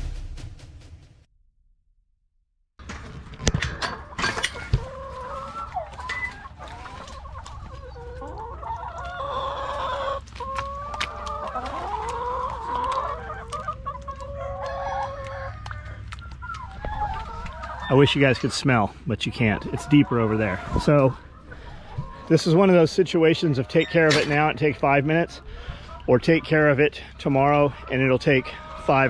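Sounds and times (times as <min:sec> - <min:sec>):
chickens clucking and calling: 0:03.4 - 0:29.0.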